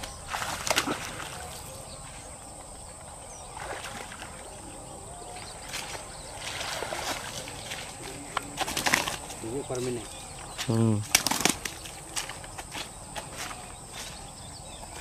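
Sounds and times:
fish splashing in water: 0:00.0 - 0:01.7, 0:05.4 - 0:09.3.

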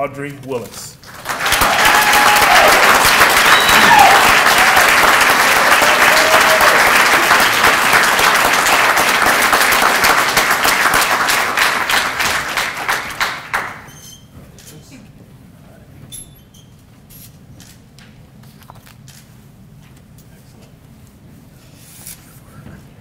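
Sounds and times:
audience applause: 0:01.0 - 0:13.9.

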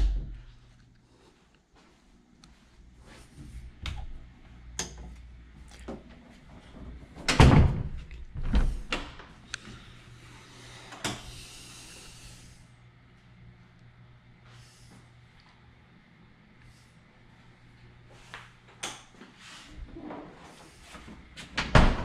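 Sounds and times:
heavy door thump: 0:07.3 - 0:08.8, 0:21.6 - 0:22.0.

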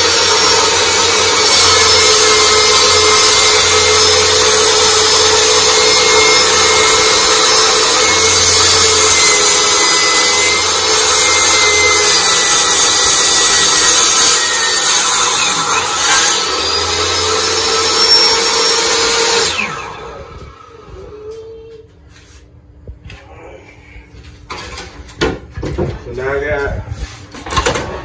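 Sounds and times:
table saw cutting plywood: 0:00.0 - 0:21.1.

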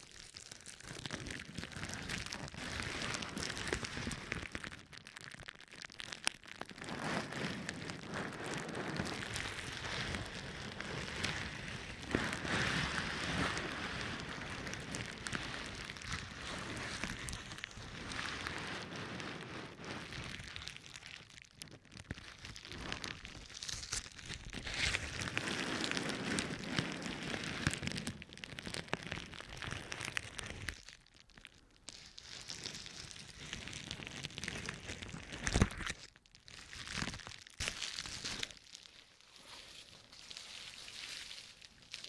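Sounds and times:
bubble wrap crackling: 0:00.0 - 0:42.0.

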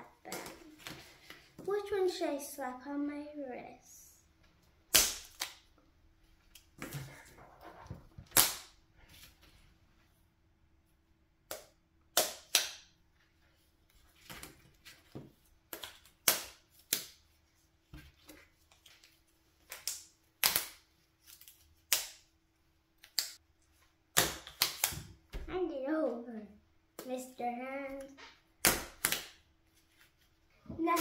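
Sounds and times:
slap bracelets snapping on wrist: 0:24.2 - 0:25.1.

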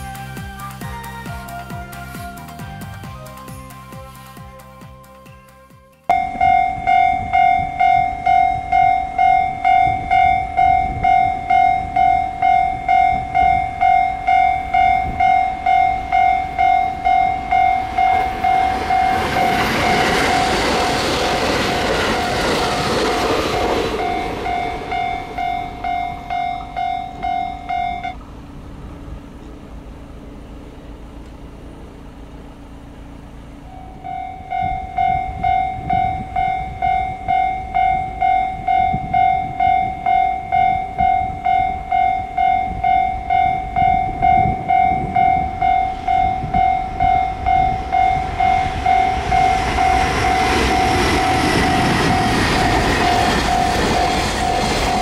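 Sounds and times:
train passing rumble: 0:00.0 - 0:55.0
level crossing warning bell: 0:06.1 - 0:28.2, 0:33.6 - 0:55.0.

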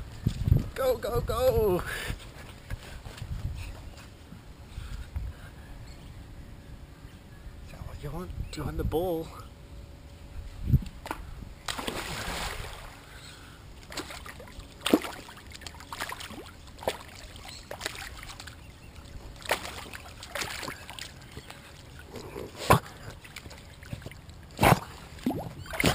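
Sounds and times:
pool water sloshing and splashing: 0:11.7 - 0:25.9
dog paddling in water: 0:13.8 - 0:25.9.

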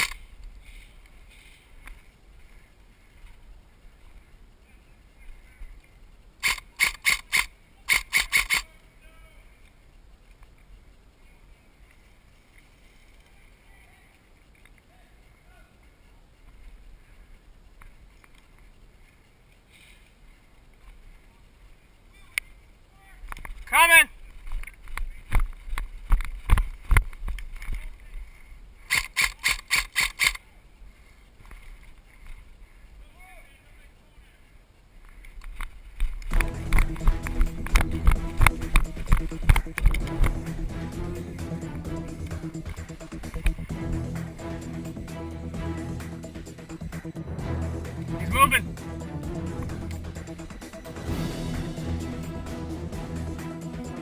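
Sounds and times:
airsoft rifle shots: 0:06.4 - 0:08.7, 0:28.9 - 0:30.4
running footsteps on forest floor: 0:35.7 - 0:47.2.

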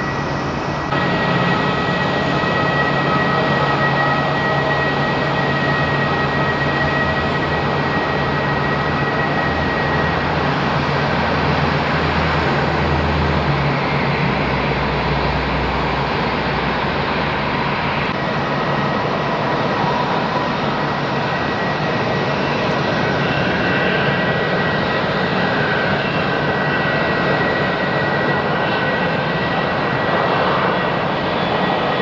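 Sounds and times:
high thin engine whine: 0:00.0 - 0:10.9
jet engines idling: 0:00.0 - 0:32.0.

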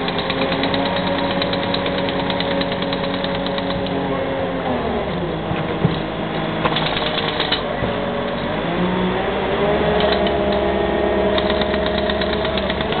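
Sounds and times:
jackhammer chattering on concrete: 0:00.0 - 0:03.9, 0:06.6 - 0:07.7, 0:10.0 - 0:10.6, 0:11.3 - 0:13.0
crane engine running: 0:00.0 - 0:13.0.

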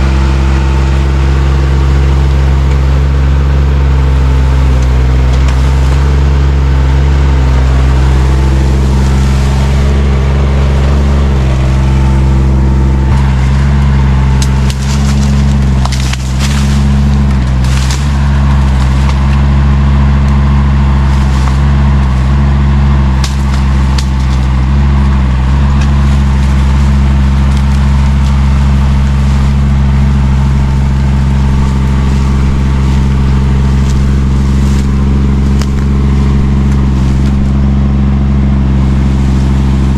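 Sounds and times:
excavator engine running: 0:00.0 - 0:39.9
vegetation cracking and snapping: 0:04.1 - 0:06.3, 0:07.7 - 0:39.9.

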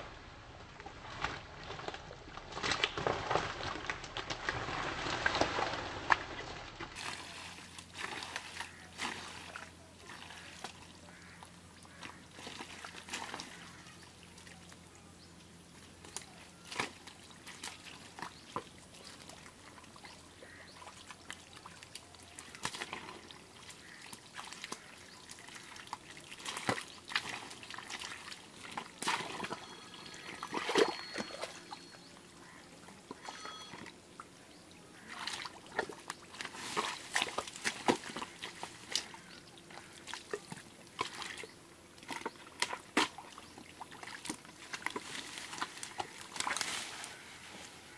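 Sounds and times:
hands splashing in wet mud: 0:02.5 - 0:10.8, 0:21.8 - 0:29.6, 0:35.1 - 0:39.3.

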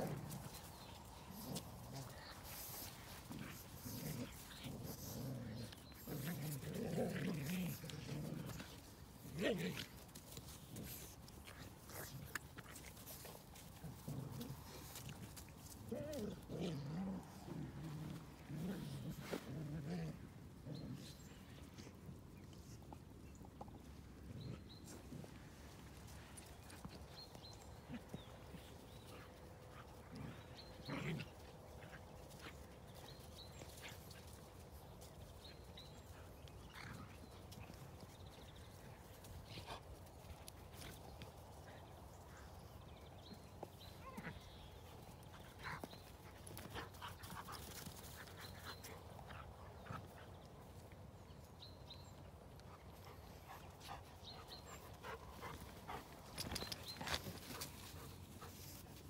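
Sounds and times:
dogs playing rough: 0:00.0 - 0:59.0
dogs panting: 0:52.6 - 0:59.0.

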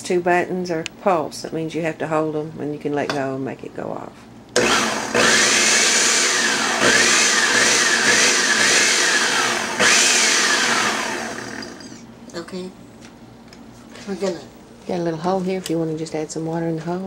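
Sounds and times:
blender motor whining: 0:04.6 - 0:12.0.

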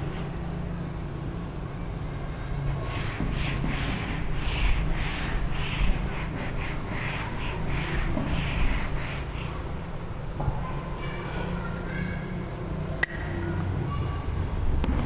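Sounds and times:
eraser rubbing across whiteboard: 0:02.7 - 0:10.0.

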